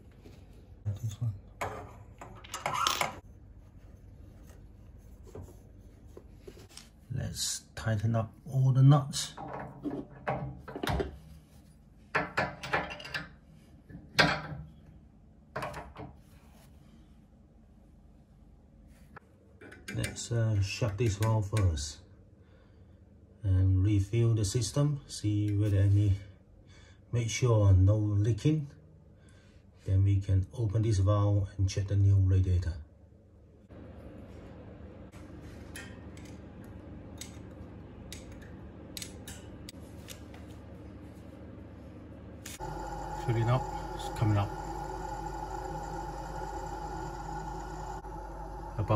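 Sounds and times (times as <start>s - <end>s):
water refilling hum: 33.7s - 48.9s.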